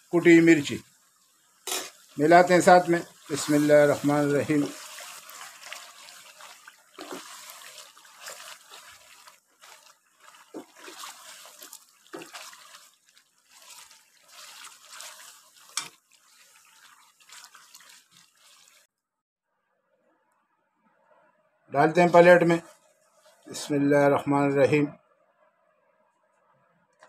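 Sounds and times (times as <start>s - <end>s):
meat sizzling in a frying pan: 0.0s - 18.9s
wooden spatula scraping and knocking: 1.7s - 18.9s.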